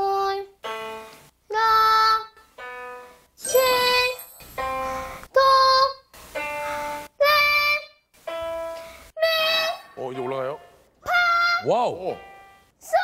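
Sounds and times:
boy singing a rising scale: 3.5s - 4.2s.

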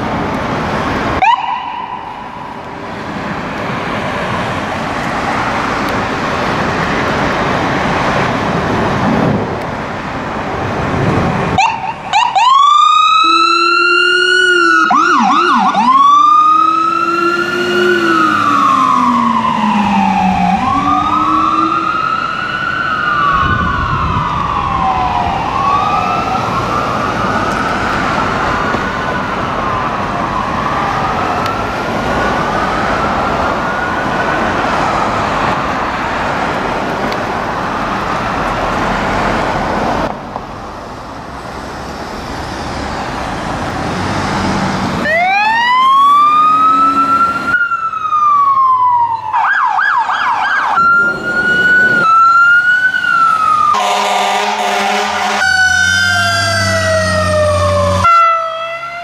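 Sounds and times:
fire engine siren wailing: 0.0s - 9.0s, 10.0s - 59.0s
road noise: 0.0s - 59.0s
siren yelp: 1.2s - 2.6s, 11.6s - 35.5s, 45.0s - 59.0s
deep low-frequency siren tone: 11.6s - 27.5s, 45.0s - 59.0s.

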